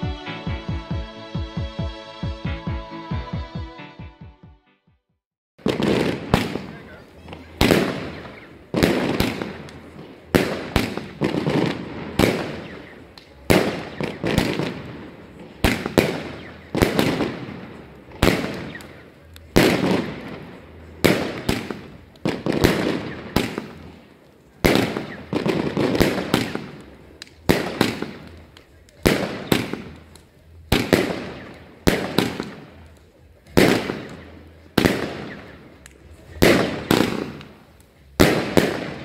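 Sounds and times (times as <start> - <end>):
firework bangs with echo: 5.6 - 39.0.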